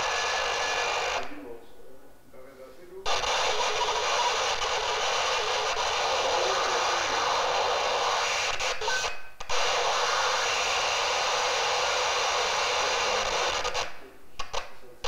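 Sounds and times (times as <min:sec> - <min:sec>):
shortwave radio static hiss: 0:00.0 - 0:15.0
faint short radio tones: 0:03.1 - 0:10.5, 0:11.4 - 0:14.9.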